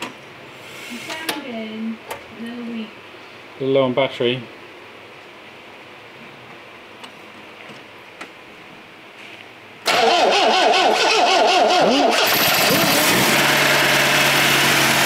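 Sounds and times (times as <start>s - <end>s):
engine starting: 9.8s - 13.4s
starter motor cranking engine: 9.9s - 15.0s.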